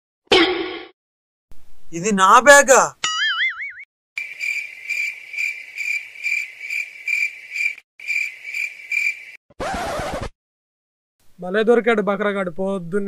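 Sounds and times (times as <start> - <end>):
crickets chirping: 4.2 - 9.4.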